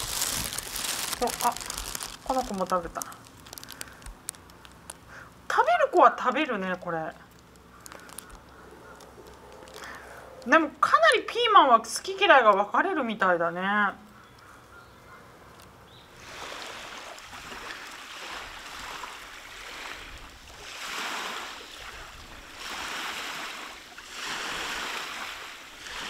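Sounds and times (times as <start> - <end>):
small waves washing onto shore: 0.0 - 4.3, 16.2 - 26.0.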